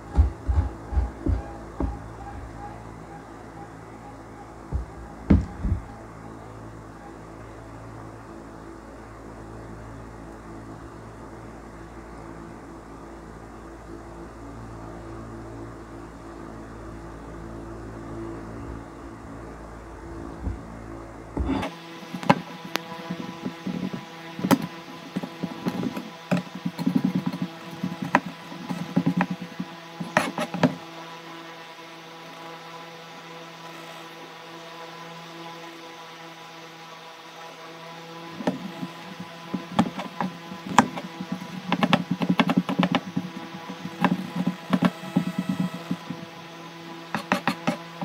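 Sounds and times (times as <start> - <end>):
steady hum: 0.0 - 48.0
knife cutting on plastic board: 21.4 - 30.8, 47.2 - 47.8.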